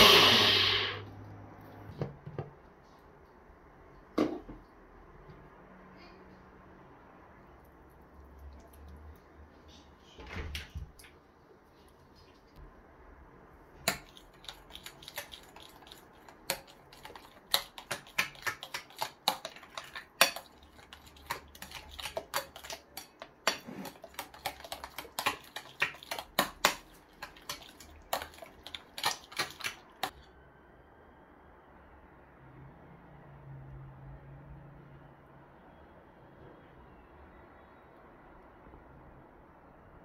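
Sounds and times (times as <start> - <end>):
metal spoon scraping glass bowl: 17.8 - 29.6.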